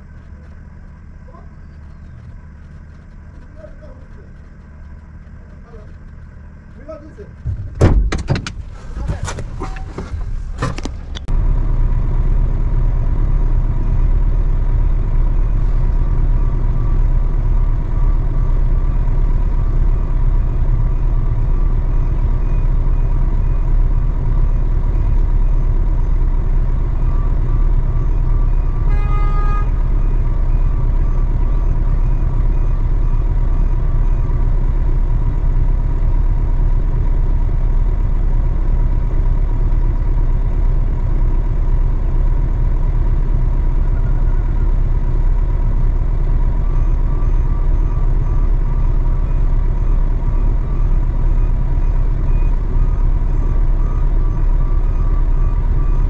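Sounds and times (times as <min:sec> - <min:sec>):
truck engine running: 0:00.0 - 0:56.0
horn beep: 0:27.0 - 0:34.4.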